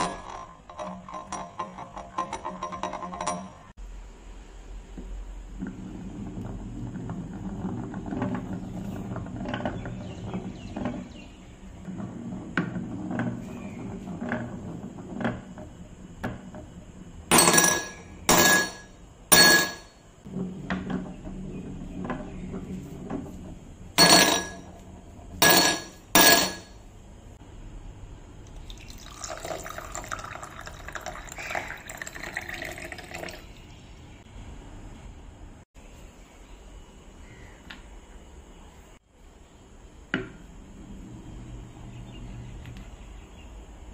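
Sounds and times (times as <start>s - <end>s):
glass marble rolling down track: 0.0s - 3.7s, 5.5s - 26.7s, 28.5s - 33.5s
water pouring into glass: 28.5s - 33.7s.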